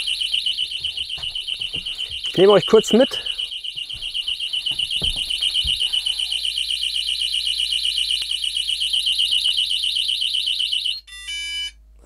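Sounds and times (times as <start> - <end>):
footsteps and handling thumps: 0.0 - 6.2
pulsing high-pitched alarm beep: 0.0 - 11.7.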